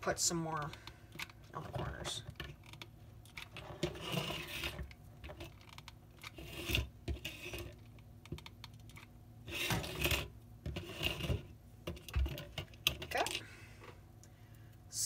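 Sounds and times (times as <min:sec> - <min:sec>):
wooden frame scraping on tabletop: 0:03.6 - 0:04.8, 0:06.3 - 0:07.8, 0:09.5 - 0:11.5.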